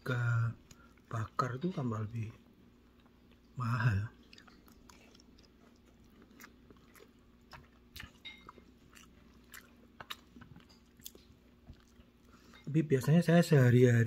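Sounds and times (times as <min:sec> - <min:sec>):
person chewing food: 0:02.8 - 0:12.7.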